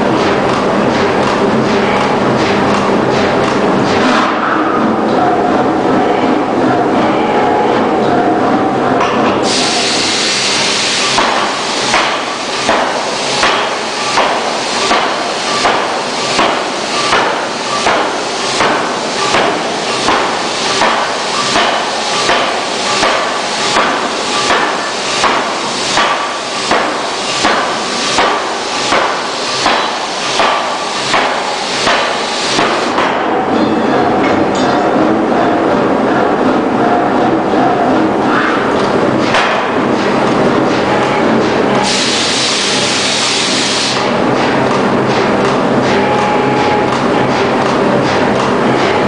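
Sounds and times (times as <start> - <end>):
machine running noise: 0.0 - 49.0
burst of hiss: 9.5 - 11.9, 41.8 - 44.0
forging hammer heavy blows: 11.1 - 35.2.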